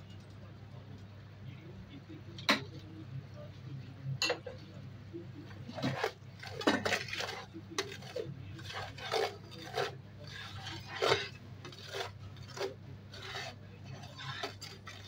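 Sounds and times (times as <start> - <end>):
metal spatula scraping pan: 5.7 - 15.0.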